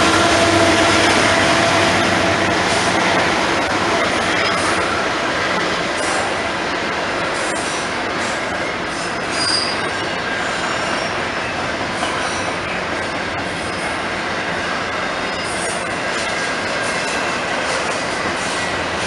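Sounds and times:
steel wheels on rail: 0.0 - 19.0
wheel squeals: 8.5 - 11.2, 15.1 - 18.8.

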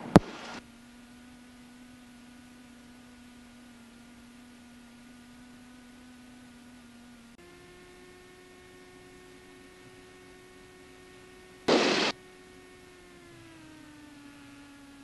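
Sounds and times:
burst of hiss: 11.7 - 12.1
electrical whine in intercom: 11.7 - 12.2.

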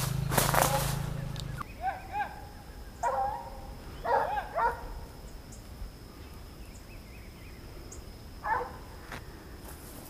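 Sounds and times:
distant dogs barking: 0.0 - 5.1, 8.4 - 8.9
high insect drone: 0.0 - 10.0.

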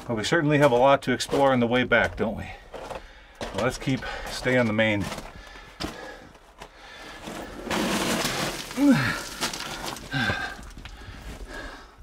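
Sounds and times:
clothing scraping against rock: 7.0 - 11.5
person grunting: 8.7 - 9.4.

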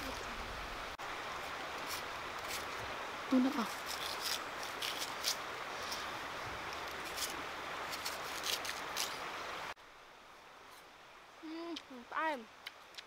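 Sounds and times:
steady background hiss: 0.0 - 13.0
knife scraping peel: 3.7 - 5.4, 6.9 - 9.2.

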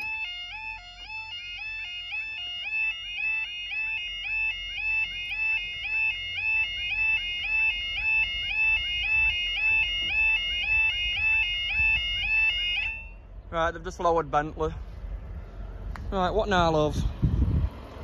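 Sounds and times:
level crossing two-tone alarm: 0.0 - 13.2
low rumble: 13.0 - 18.0.

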